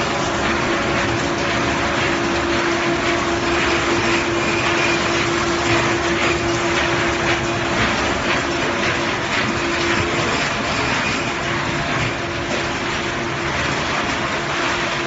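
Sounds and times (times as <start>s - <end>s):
conveyors and motors running: 0.0s - 15.0s.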